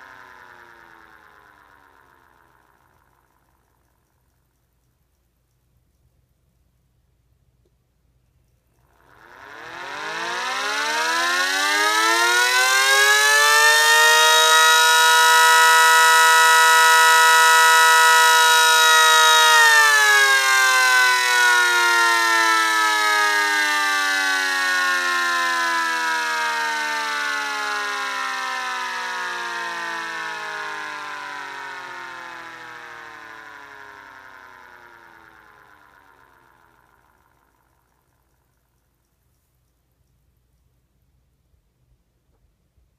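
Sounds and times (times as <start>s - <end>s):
electric siren wailing: 0.0s - 3.7s, 9.0s - 38.4s.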